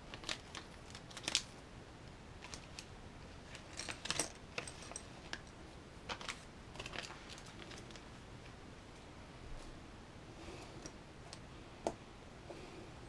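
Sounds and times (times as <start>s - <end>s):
plastic bag rustling: 0.0s - 1.6s, 2.4s - 8.2s
plastic parts clicking and rattling: 3.5s - 8.0s.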